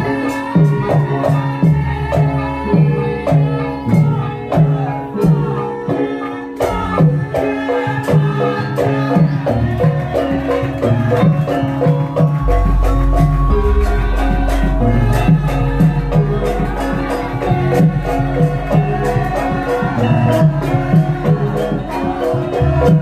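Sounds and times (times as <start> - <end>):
tuned percussion melody: 10.0 - 23.0
drum with pitch-bending strokes: 11.0 - 23.0.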